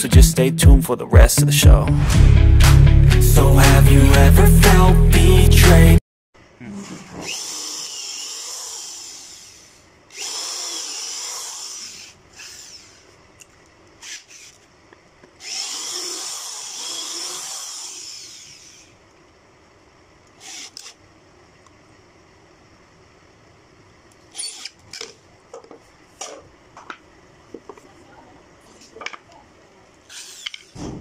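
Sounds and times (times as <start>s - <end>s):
electric drill boring holes: 7.2s - 13.2s, 14.0s - 14.7s, 15.4s - 19.0s, 20.4s - 21.0s, 24.3s - 25.1s, 30.1s - 30.8s.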